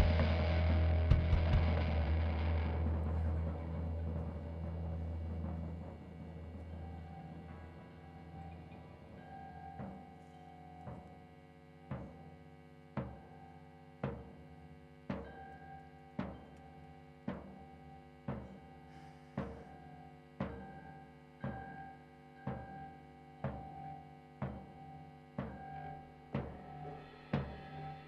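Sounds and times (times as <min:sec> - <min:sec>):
slow drum beat: 0:00.0 - 0:07.5, 0:26.4 - 0:28.0.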